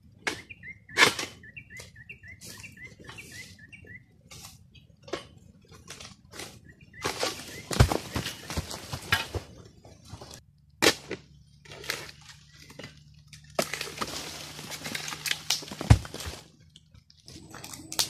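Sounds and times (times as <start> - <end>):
dry palm fronds rustling: 5.7 - 10.4, 11.6 - 18.0.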